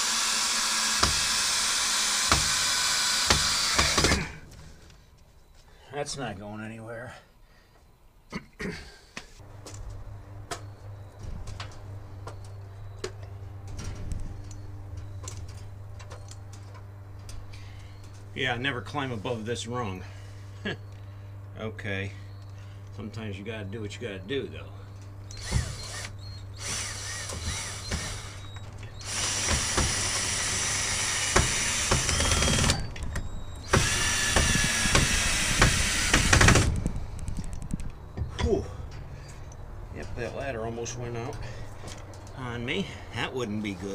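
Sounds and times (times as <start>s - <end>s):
cordless drill driving screws: 0.0s - 4.2s, 25.3s - 32.9s, 33.6s - 36.7s
steady low hum: 1.2s - 43.9s.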